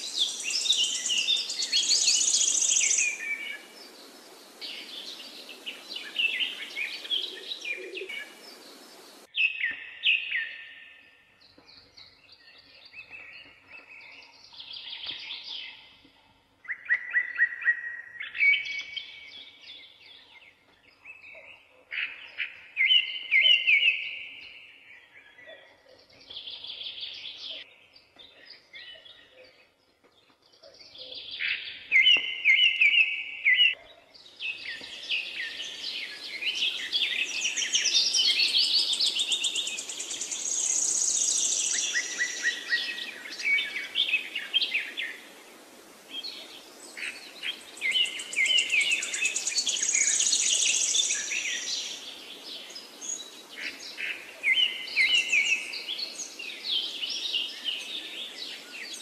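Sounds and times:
steady hiss: 0:00.0 - 0:09.3, 0:35.0 - 0:54.4
songbirds singing: 0:00.0 - 0:59.0.

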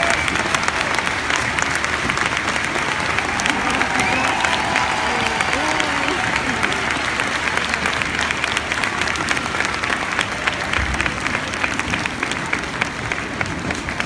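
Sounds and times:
audience applauding: 0:00.0 - 0:14.0
close hand claps: 0:00.0 - 0:14.0.

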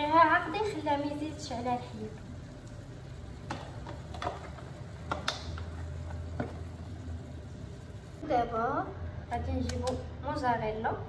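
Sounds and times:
faint steady low hum: 0:00.0 - 0:11.0.

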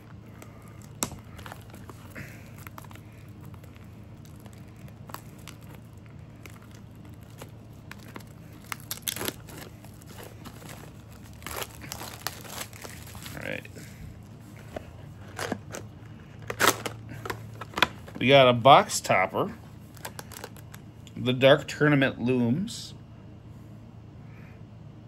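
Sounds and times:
cardboard rustling: 0:00.0 - 0:13.6, 0:14.5 - 0:18.4
plastic wrap crinkling and tearing: 0:00.0 - 0:13.9, 0:14.6 - 0:18.3, 0:19.8 - 0:20.8.

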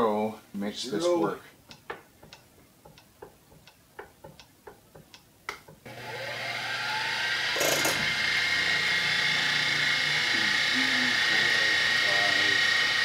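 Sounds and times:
light ticks: 0:01.7 - 0:05.8.

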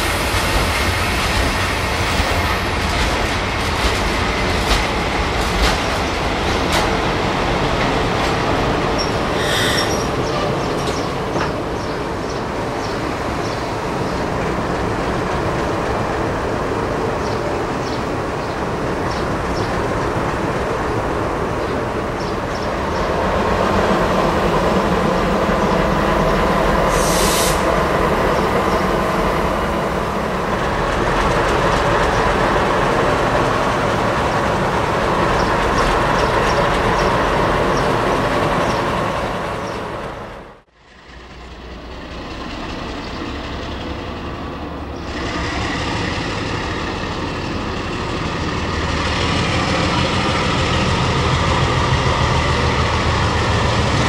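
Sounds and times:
diesel locomotive engine: 0:00.0 - 0:54.0
train rolling on rails: 0:00.0 - 0:54.0
high squeal: 0:09.0 - 0:10.4.

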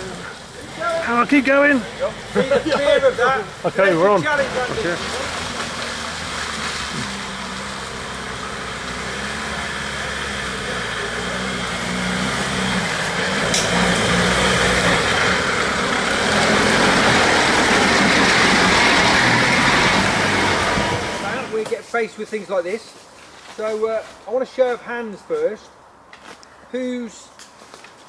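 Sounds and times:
vehicle engine running: 0:00.0 - 0:21.6.

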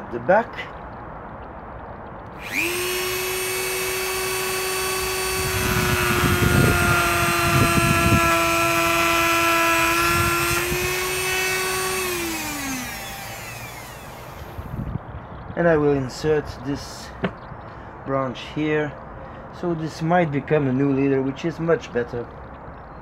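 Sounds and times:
rotary tool grinding wood: 0:02.4 - 0:14.7
rotary tool whine: 0:02.4 - 0:14.8.

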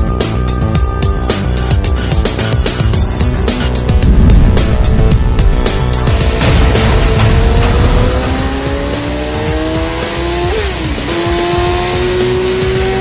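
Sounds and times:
music: 0:00.0 - 0:13.0
motorcycle engine accelerating: 0:03.1 - 0:13.0.

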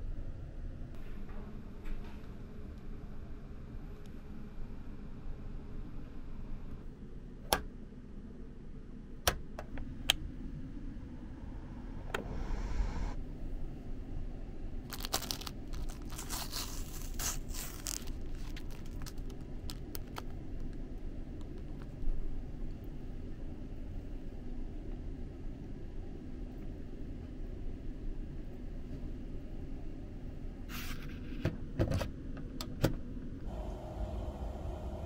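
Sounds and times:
low steady hum: 0:00.0 - 0:35.0
plastic bag crinkling: 0:14.9 - 0:20.7.

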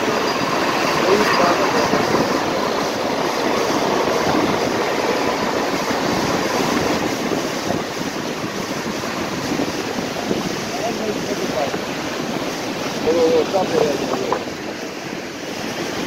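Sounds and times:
river rushing through rapids: 0:00.0 - 0:16.0.

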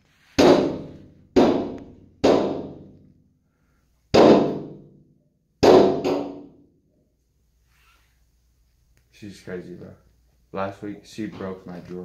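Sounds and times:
heavy pounding on a door: 0:00.4 - 0:02.9, 0:04.1 - 0:04.8, 0:05.6 - 0:06.6.

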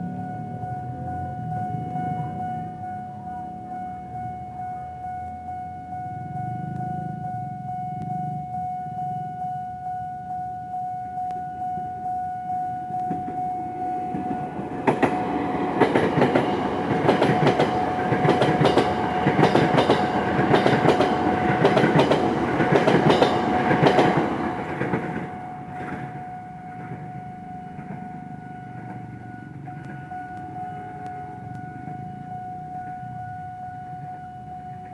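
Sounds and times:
electric train passing: 0:00.0 - 0:34.9
level-crossing warning alarm: 0:00.0 - 0:34.9
wheels clattering over rail joints: 0:14.2 - 0:26.2.

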